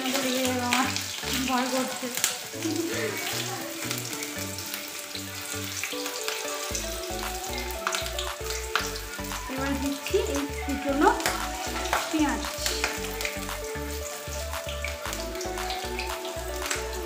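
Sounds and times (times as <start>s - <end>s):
chillies sizzling in oil: 0.0s - 17.0s
background music with low beat: 2.5s - 17.0s.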